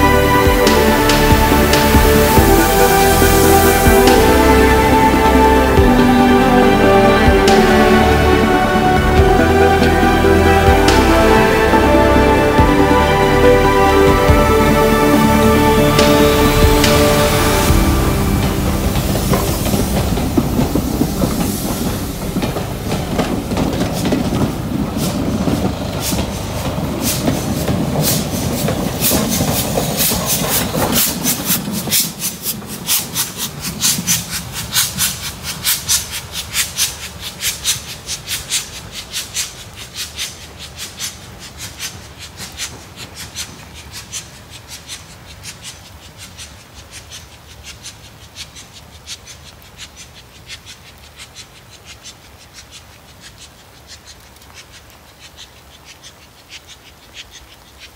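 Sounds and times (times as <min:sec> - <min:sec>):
steam train rumble: 0:00.0 - 0:57.9
train wheels clicking over rail joints: 0:16.1 - 0:57.9.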